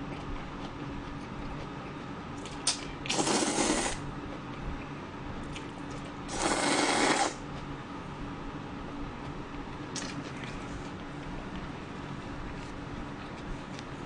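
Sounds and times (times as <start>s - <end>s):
slurping noodles: 3.1s - 4.0s, 6.3s - 7.4s.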